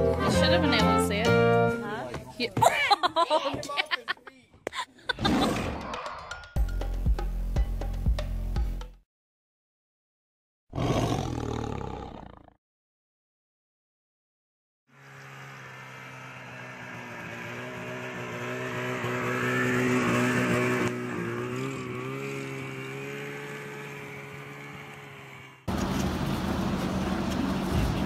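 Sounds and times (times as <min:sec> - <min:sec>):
snowmobile engine running: 0:14.9 - 0:28.0.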